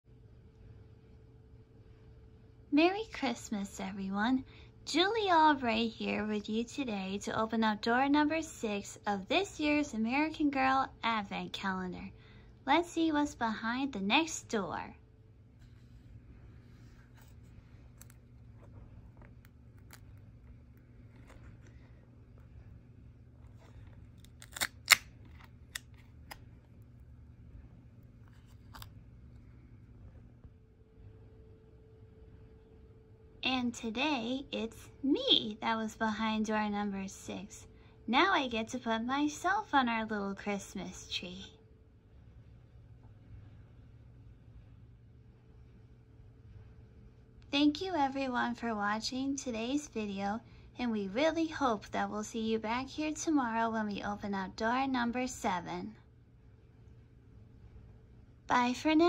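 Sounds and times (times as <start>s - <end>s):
faint low hum: 0.0s - 59.0s
faint steady tone: 26.7s - 59.0s.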